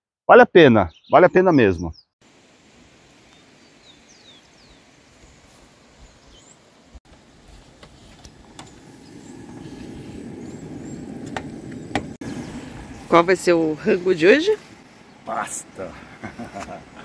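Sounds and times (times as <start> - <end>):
bird chirps: 0.7 - 2.2, 3.3 - 5.3, 8.6 - 13.4.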